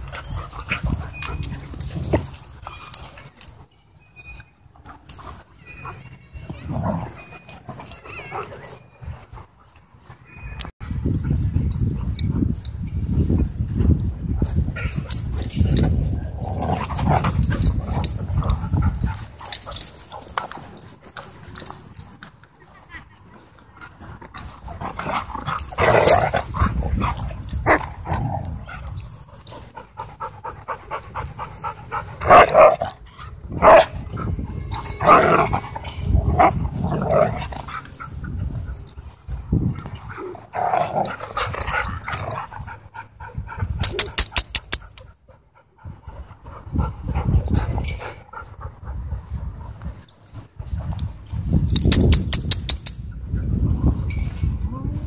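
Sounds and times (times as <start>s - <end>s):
dogs panting: 0.0s - 3.7s, 14.9s - 32.4s, 36.6s - 50.9s
dogs growling: 16.1s - 18.9s, 24.7s - 29.0s.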